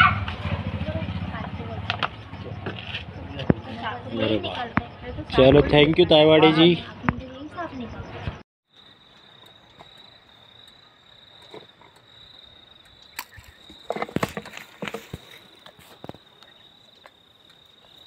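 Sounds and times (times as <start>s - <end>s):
cricket trilling: 0.5s - 18.0s
plastic bottle crackling: 13.2s - 16.2s.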